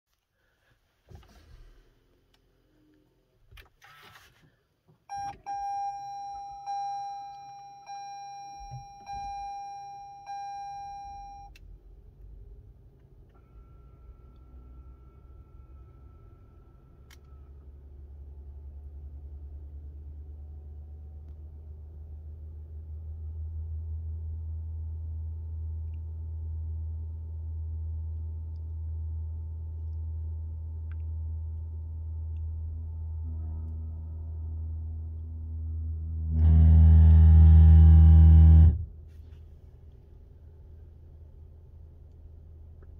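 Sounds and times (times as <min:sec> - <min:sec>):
low hum: 0:05.1 - 0:42.9
compressor horn-like steady tone: 0:32.7 - 0:38.9.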